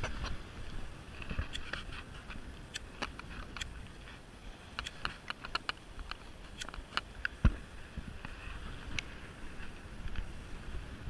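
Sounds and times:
camera handling clicks and rubbing: 0:01.2 - 0:07.4.

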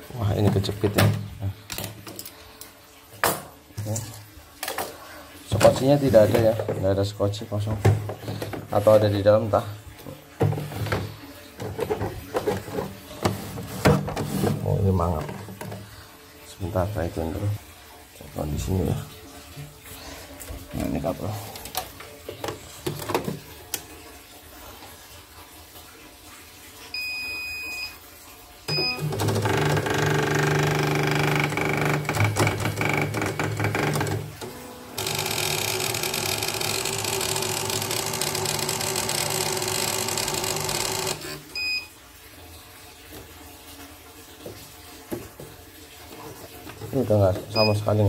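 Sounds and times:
embroidery machine motors running: 0:29.0 - 0:41.4.

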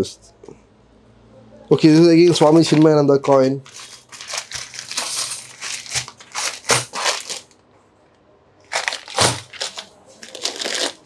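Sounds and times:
plastic packets crinkling: 0:01.8 - 0:07.6, 0:08.6 - 0:11.0.

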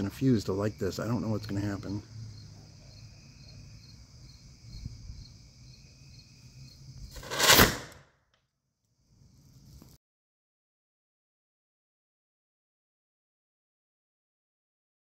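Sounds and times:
crickets chirping: 0:00.0 - 0:07.8, 0:08.8 - 0:10.0
rocket motor rushing burst: 0:07.1 - 0:08.0.

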